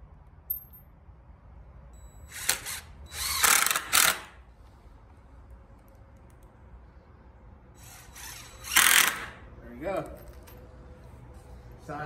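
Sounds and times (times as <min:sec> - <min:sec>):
cordless drill driving screw: 0:02.3 - 0:04.4, 0:07.8 - 0:09.4.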